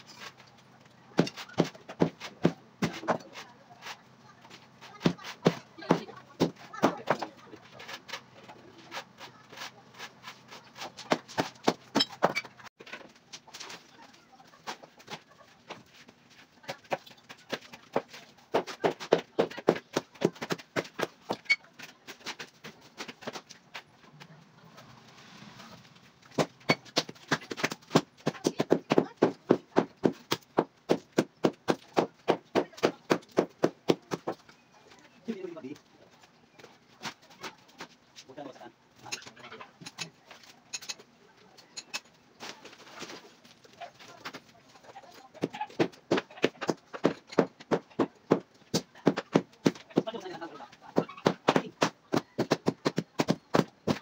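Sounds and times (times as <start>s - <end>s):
hammering on masonry: 16.8s - 21.4s, 26.3s - 34.4s, 45.4s - 50.2s, 51.0s - 54.0s.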